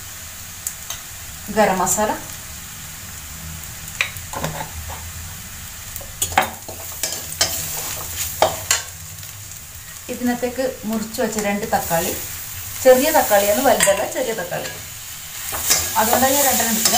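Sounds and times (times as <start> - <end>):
frying in oil sizzle: 0.0 - 16.9
metal spatula scraping pan: 4.3 - 5.1, 13.5 - 16.9.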